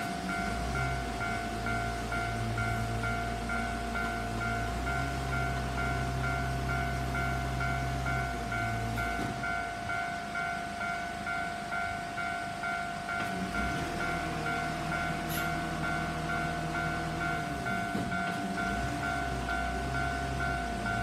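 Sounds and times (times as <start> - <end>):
level crossing warning bell: 0.0 - 21.0.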